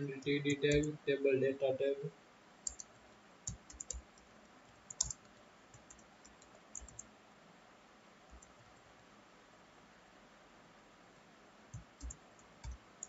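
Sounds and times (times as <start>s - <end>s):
keyboard typing clicks: 0.0s - 0.9s, 2.6s - 7.1s, 8.3s - 8.8s, 11.7s - 12.8s.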